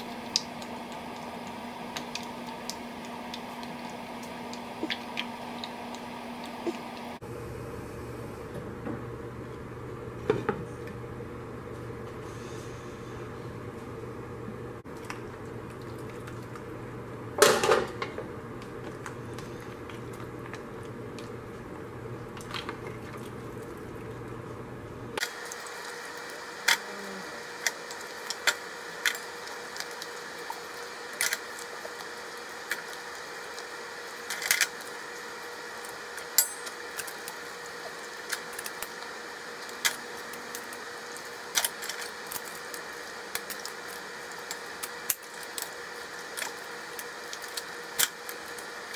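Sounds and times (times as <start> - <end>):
utensils clinking against metal pot: 36.4 - 36.8.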